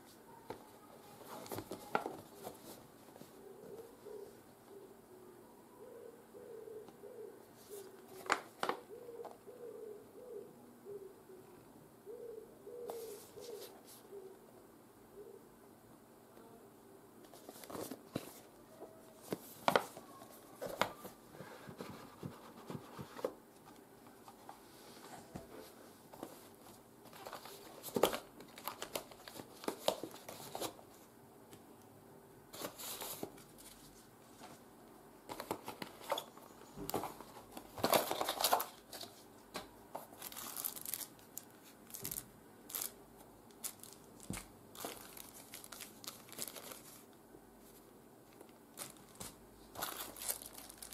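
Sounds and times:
cardboard and plastic bags rustling: 35.3 - 47.1, 48.3 - 50.9.

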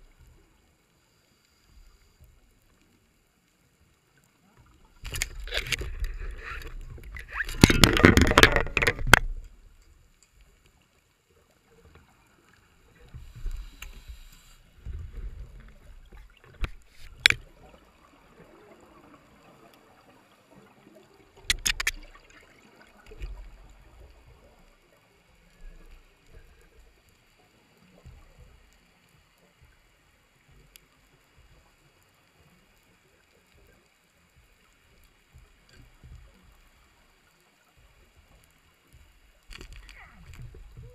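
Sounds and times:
underwater bubbling: 0.0 - 40.9
sharp clicks: 21.5 - 22.1.

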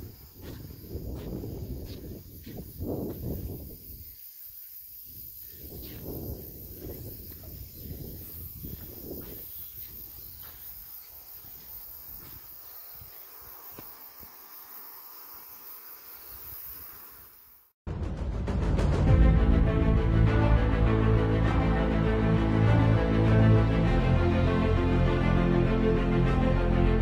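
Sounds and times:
high insect chirring: 0.0 - 17.7.

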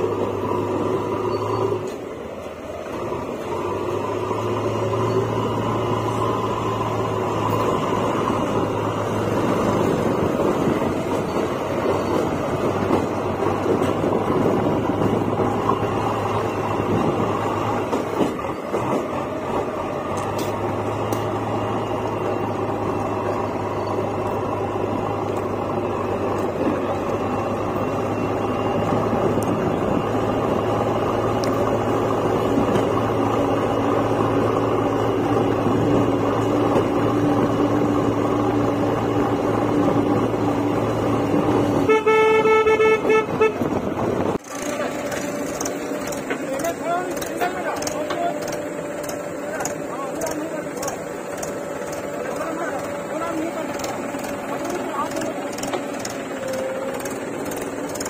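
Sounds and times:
road noise: 0.0 - 58.0
vehicle engines droning: 0.0 - 58.0
vehicle horn: 41.8 - 43.9.

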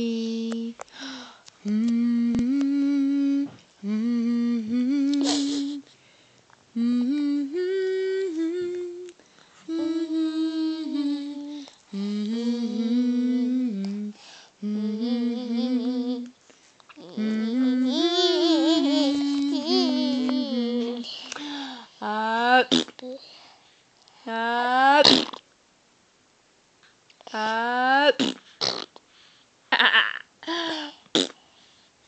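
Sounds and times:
woman humming a slow tune: 0.0 - 0.8, 1.6 - 5.9, 6.7 - 16.4, 17.0 - 22.7.

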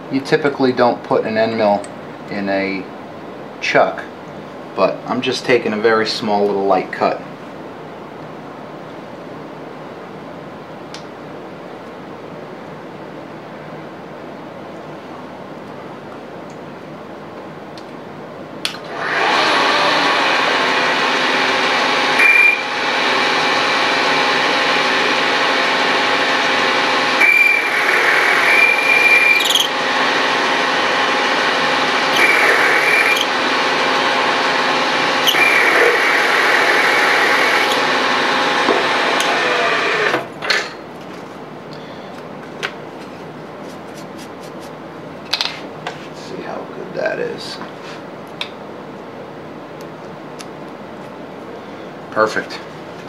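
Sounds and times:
cutter high-pitched whines: 18.9 - 25.2, 26.9 - 40.3
milling machine spindle running: 18.9 - 40.3.

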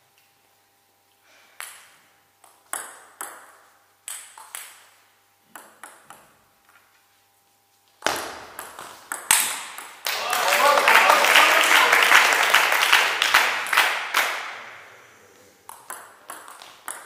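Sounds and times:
table tennis ball bouncing: 1.6 - 6.4, 8.0 - 10.0, 15.7 - 17.0
bat hitting table tennis ball: 8.0 - 10.0, 15.7 - 17.0.

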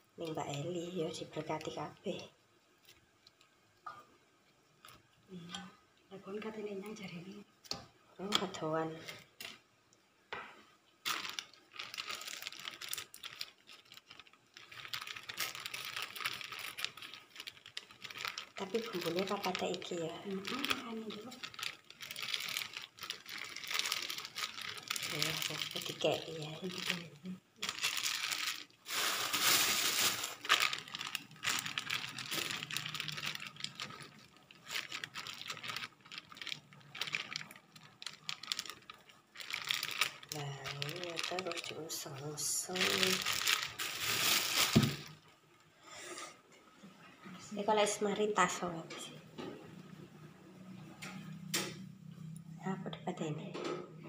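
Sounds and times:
plastic bag crinkling: 11.0 - 45.3.

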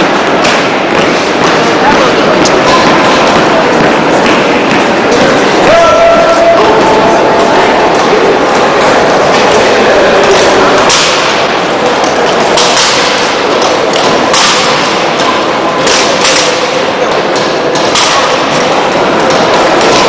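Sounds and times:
steady background din: 0.0 - 20.0.

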